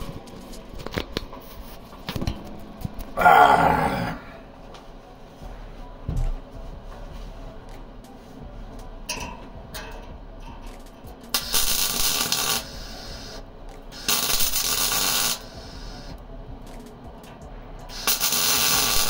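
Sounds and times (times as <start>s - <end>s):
electric arc welding crackling: 11.3s - 16.1s, 17.9s - 19.0s.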